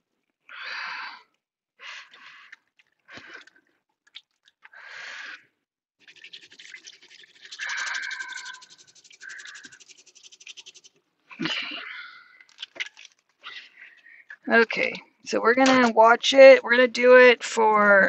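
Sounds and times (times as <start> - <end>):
soapy hands scrubbing: 6.0 - 11.0, 12.5 - 14.0
tap water running and splashing: 6.0 - 11.0.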